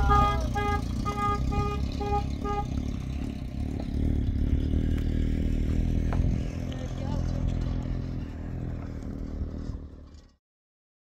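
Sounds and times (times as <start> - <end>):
vehicle horn short beeps: 0.0 - 2.8
engine running low rumble: 0.0 - 10.4.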